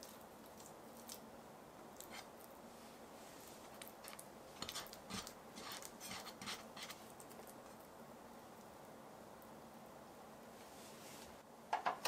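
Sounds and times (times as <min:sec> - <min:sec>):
hands patting sticky dough: 0:03.7 - 0:07.6.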